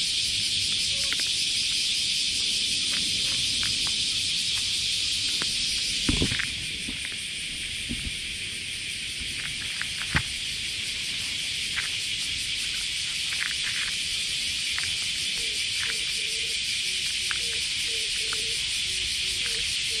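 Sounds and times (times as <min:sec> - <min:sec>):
steady high-pitched hiss: 0:00.0 - 0:20.0
cat crunching dry kibble: 0:12.7 - 0:15.2.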